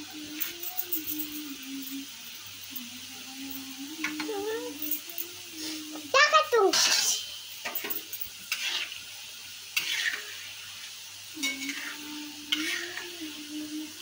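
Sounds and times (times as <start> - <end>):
food sizzling in a pan: 0.0 - 14.0
metal spatula scraping: 6.7 - 9.0, 9.6 - 13.4.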